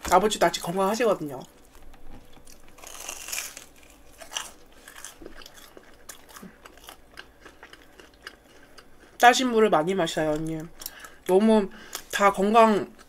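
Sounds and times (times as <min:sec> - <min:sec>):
close-up chewing: 0:01.4 - 0:09.2, 0:10.2 - 0:12.2
crunch of fried crust: 0:02.1 - 0:09.2.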